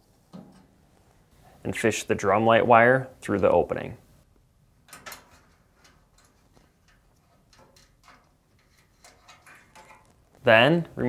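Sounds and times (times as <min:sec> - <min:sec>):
wire rustling: 0:04.3 - 0:11.0.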